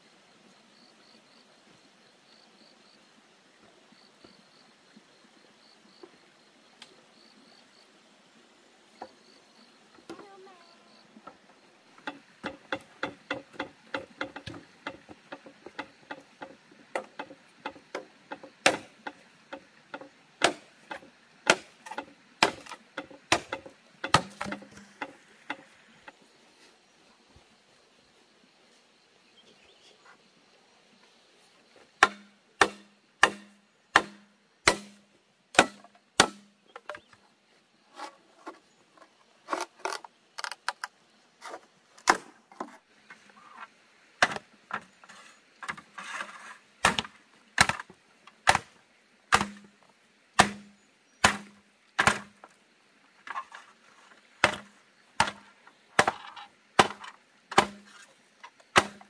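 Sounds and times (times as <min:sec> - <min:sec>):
chopping wood: 0:12.0 - 0:25.7, 0:32.0 - 0:35.0, 0:35.6 - 0:37.1, 0:42.0 - 0:42.3, 0:44.2 - 0:44.9, 0:46.8 - 0:49.8, 0:50.4 - 0:52.6, 0:54.4 - 0:58.0, 0:58.7 - 0:59.0.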